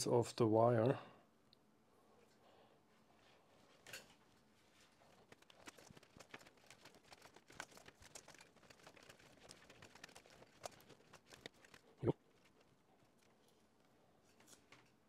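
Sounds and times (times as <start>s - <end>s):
ribbon wire crackling and ticking: 5.0s - 13.6s.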